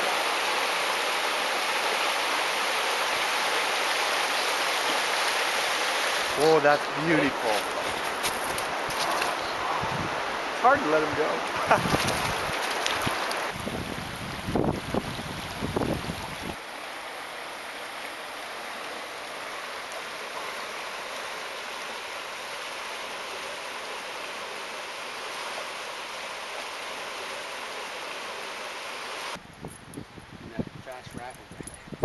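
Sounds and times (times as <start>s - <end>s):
river water rushing over gravel: 0.0s - 29.4s
wind buffeting microphone: 9.4s - 10.4s, 11.6s - 16.6s, 29.4s - 32.0s.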